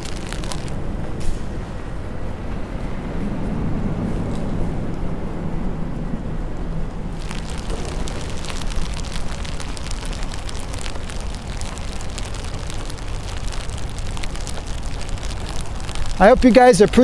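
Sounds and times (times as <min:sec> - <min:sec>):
raindrops ticking: 0:00.0 - 0:00.8, 0:07.2 - 0:17.0
low wind rumble: 0:00.0 - 0:17.0.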